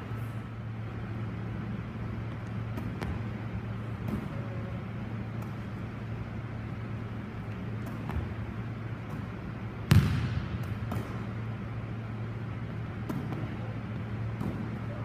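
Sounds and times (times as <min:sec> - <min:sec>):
steady low hum: 0:00.0 - 0:15.0
volleyball smack echoing: 0:09.8 - 0:11.3.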